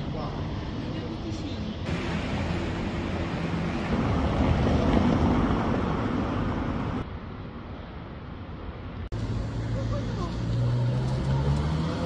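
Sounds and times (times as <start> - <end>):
car passing by: 9.2 - 12.0.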